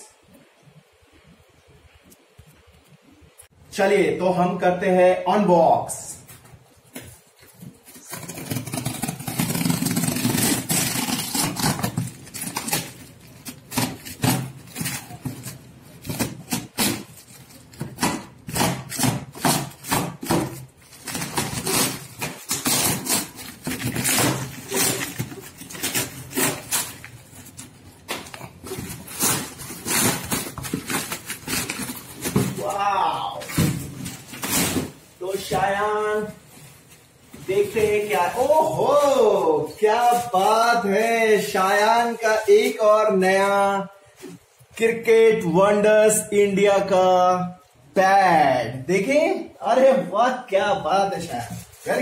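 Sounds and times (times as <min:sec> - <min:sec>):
wrapping paper ripping and rustling: 0:07.6 - 0:40.8, 0:51.2 - 0:52.0.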